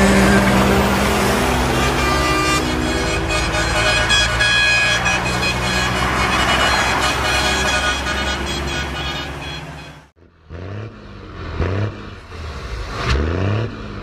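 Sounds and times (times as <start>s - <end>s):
air horn: 0.0s - 10.1s
trucks passing on highway: 0.0s - 14.0s.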